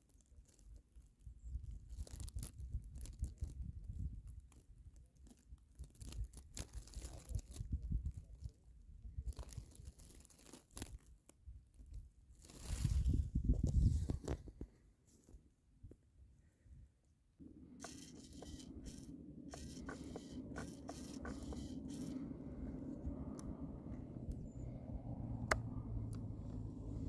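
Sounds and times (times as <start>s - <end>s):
wind on microphone: 12.6s - 14.5s, 17.8s - 27.0s
grass brushing microphone: 17.4s - 27.0s.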